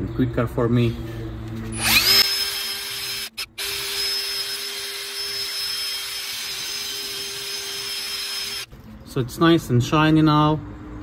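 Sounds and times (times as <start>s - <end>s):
drill motor whine: 1.7s - 8.7s.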